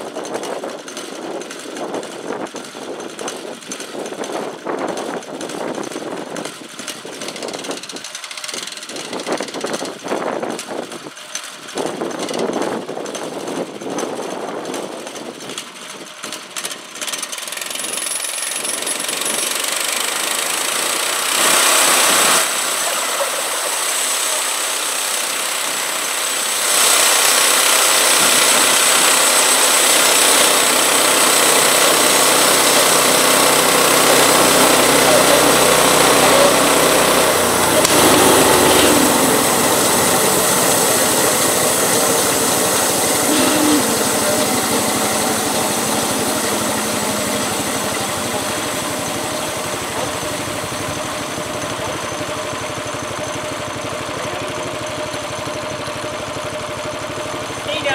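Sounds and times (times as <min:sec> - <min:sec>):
small gas engine running: 0:00.0 - 0:57.9
band blade sawing log: 0:21.0 - 0:50.4.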